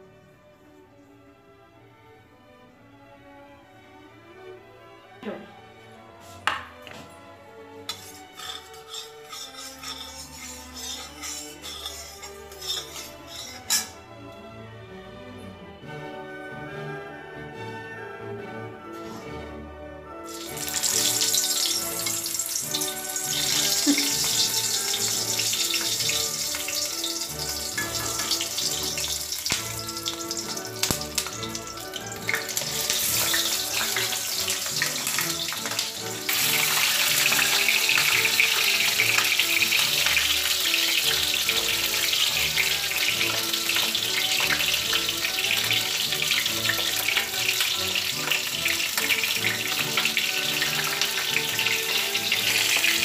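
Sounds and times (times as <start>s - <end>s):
background music: 0.0s - 53.0s
metal spatula turning food: 7.8s - 14.0s, 20.3s - 53.0s
tomatoes sizzling in a pan: 7.9s - 14.0s, 20.3s - 53.0s.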